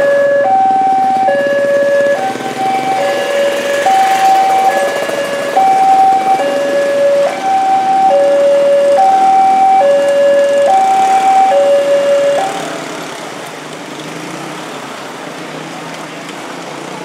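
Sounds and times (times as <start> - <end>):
level-crossing alarm two-tone signal: 0.0 - 12.7
motorcycle and car traffic: 0.0 - 17.0.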